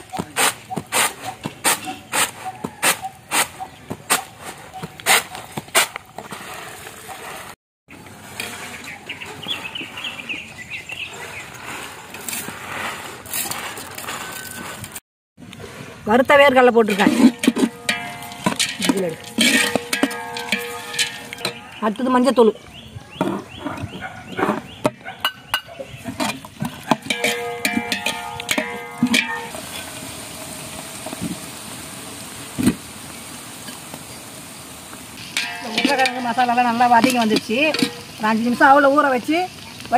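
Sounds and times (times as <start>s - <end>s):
bird chirping: 0.0s - 5.6s, 8.6s - 11.8s, 18.2s - 26.3s
metal ladle scraping a pan: 0.4s - 10.3s, 15.6s - 21.8s, 25.3s - 30.4s, 35.2s - 38.2s
oil sizzling in a pan: 27.1s - 39.9s.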